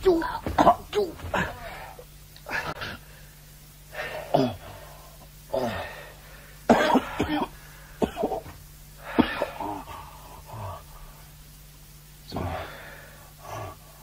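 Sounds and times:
faint low hum: 0.0s - 14.0s
man coughing and groaning: 0.4s - 3.0s, 4.1s - 4.7s, 6.7s - 10.2s.

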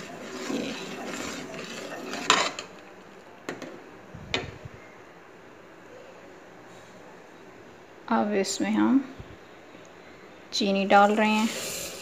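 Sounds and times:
ladle scraping metal pot: 0.0s - 2.8s.

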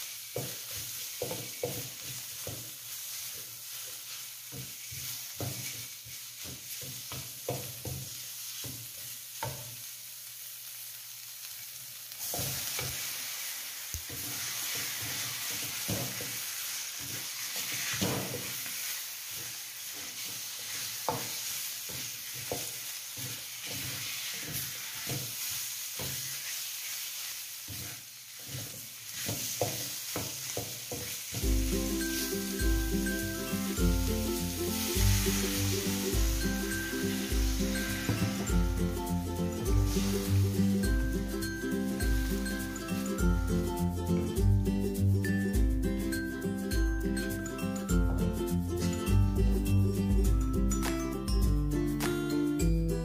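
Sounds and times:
spatula scraping a pan: 0.0s - 9.5s, 12.2s - 31.4s, 34.8s - 38.6s, 39.8s - 40.5s
food sizzling in a wok: 0.0s - 52.8s.

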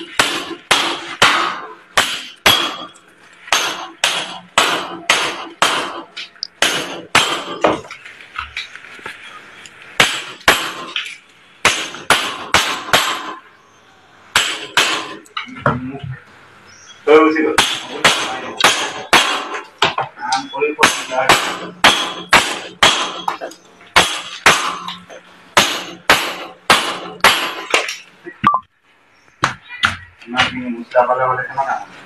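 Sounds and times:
hammer striking steel frame: 0.0s - 7.9s, 10.0s - 13.4s, 14.3s - 15.3s, 17.6s - 20.0s, 20.8s - 28.0s.

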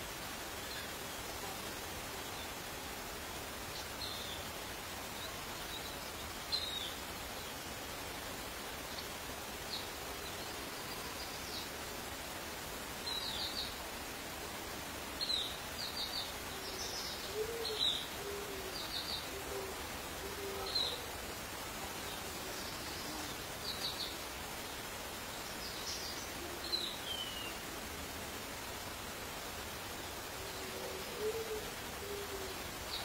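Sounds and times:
steady background hiss: 0.0s - 33.0s
low hooting bird calls: 16.6s - 21.1s, 30.4s - 33.0s.

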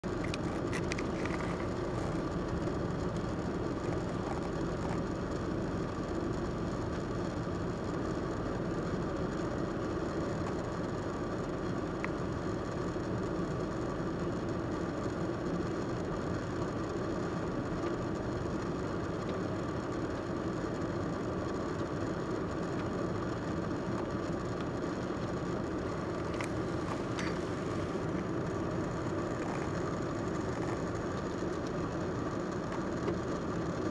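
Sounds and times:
traffic rumble: 0.0s - 12.4s, 22.2s - 33.9s
car engines idling: 0.0s - 33.9s.

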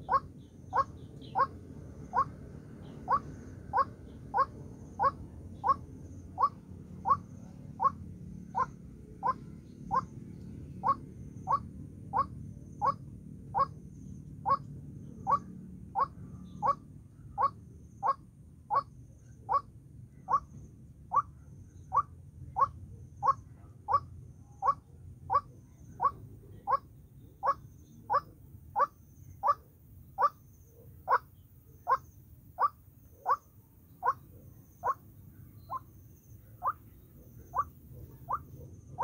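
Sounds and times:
waterhen calling: 8.6s - 10.1s, 34.0s - 35.0s, 37.5s - 38.4s.

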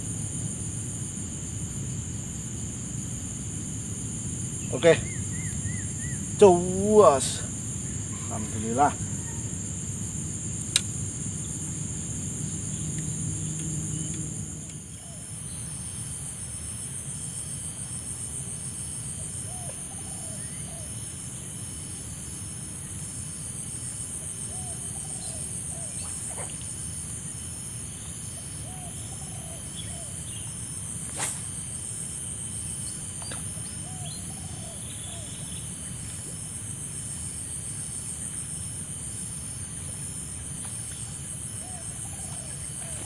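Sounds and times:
insects chorus: 0.0s - 43.0s
animal call: 7.9s - 9.6s
sharp click: 10.6s - 11.0s.

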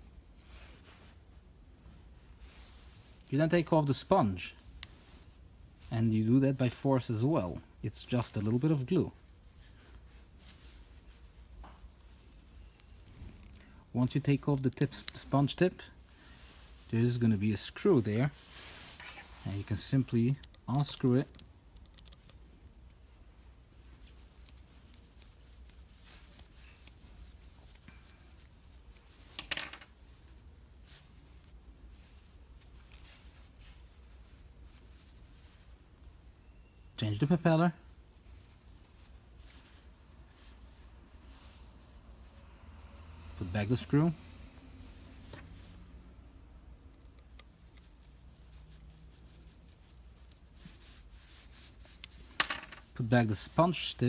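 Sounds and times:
screwdriver clicking and rubbing: 20.4s - 22.4s.

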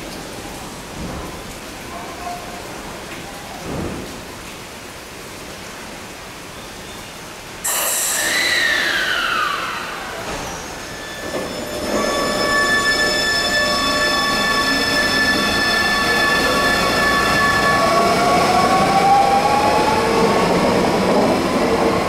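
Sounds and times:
rain falling: 0.0s - 7.7s
train inverter tones: 8.2s - 22.0s.

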